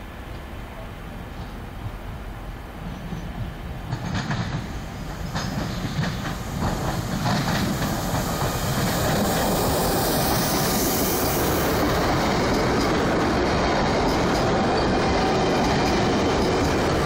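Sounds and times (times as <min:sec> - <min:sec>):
train rushing rumble with hiss: 0:00.0 - 0:17.0
train wheels clicking over rail joints: 0:02.8 - 0:17.0.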